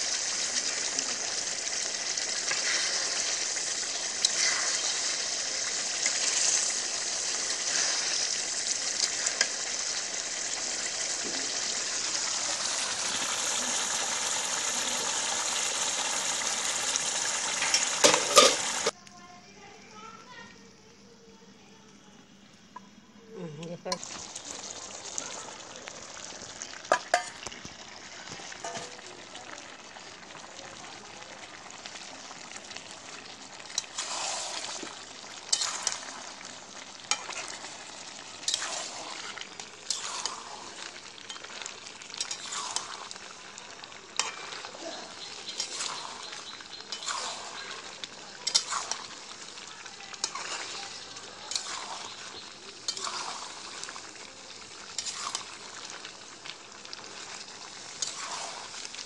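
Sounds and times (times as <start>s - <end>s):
meat and potatoes sizzling in oil: 0.0s - 19.0s, 23.4s - 59.0s
spatula scraping a metal pan: 44.2s - 44.6s, 46.9s - 47.7s, 50.2s - 52.2s.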